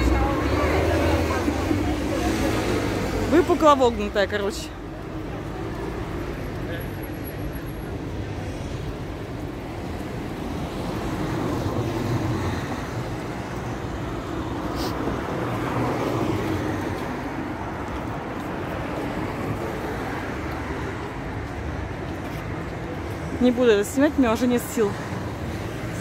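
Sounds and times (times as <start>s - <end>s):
street traffic: 0.0s - 26.0s.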